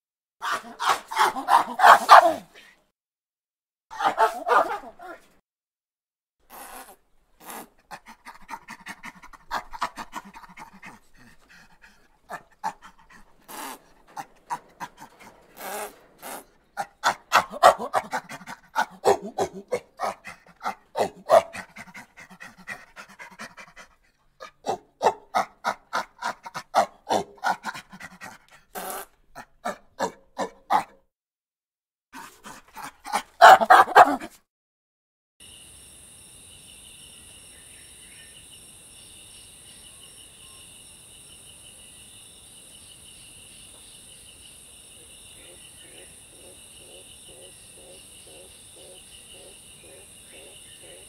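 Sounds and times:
animal calling in breathy pulses: 0:06.5 - 0:30.8, 0:45.4 - 0:51.0.

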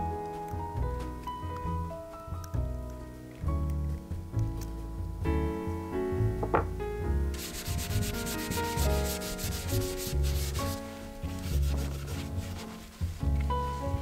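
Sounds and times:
hand sanding metal: 0:07.3 - 0:13.2.

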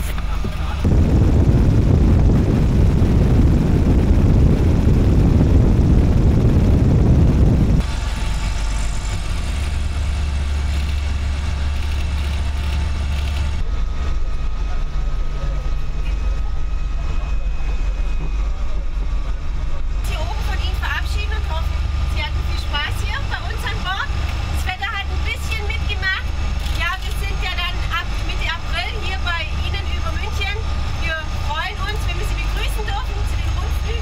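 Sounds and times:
propeller engines droning: 0:00.0 - 0:34.0
rushing air: 0:00.8 - 0:13.9.

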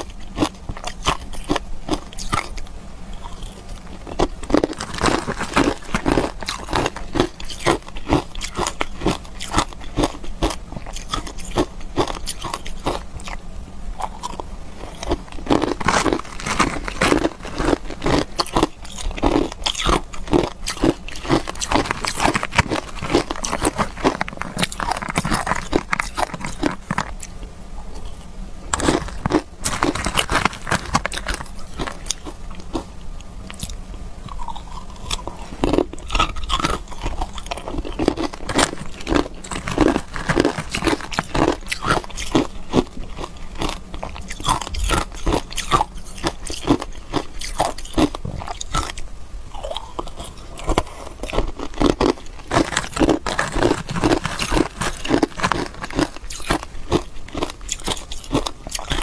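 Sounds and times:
ice being chewed: 0:00.0 - 0:59.0.

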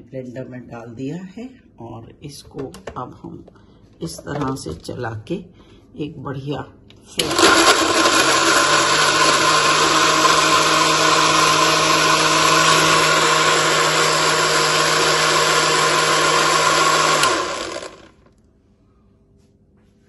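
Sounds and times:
blender motor whirring: 0:07.2 - 0:18.3.

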